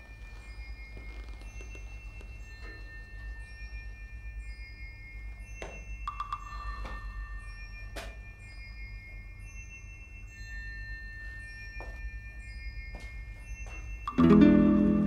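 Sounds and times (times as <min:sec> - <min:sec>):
chime-like tones: 0:00.0 - 0:15.0
plucked-string chord: 0:14.2 - 0:15.0.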